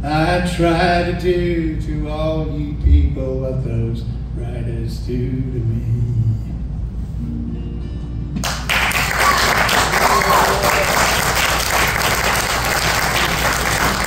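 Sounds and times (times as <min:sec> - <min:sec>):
acoustic guitar chord ringing: 0:07.1 - 0:08.4
audience applause: 0:08.4 - 0:14.0
voices among clapping: 0:08.5 - 0:14.0.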